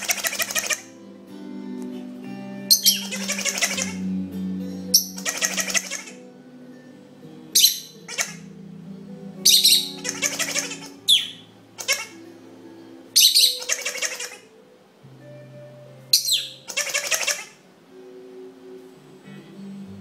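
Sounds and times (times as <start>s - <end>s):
toy recorded laughter: 0.0s - 0.9s, 3.0s - 4.0s, 5.2s - 6.2s, 10.0s - 10.9s, 11.8s - 12.2s, 13.4s - 14.4s, 16.7s - 17.6s
bird chirping: 0.0s - 1.0s, 2.7s - 6.3s, 7.5s - 8.5s, 9.4s - 12.3s, 13.2s - 14.6s, 16.0s - 17.6s.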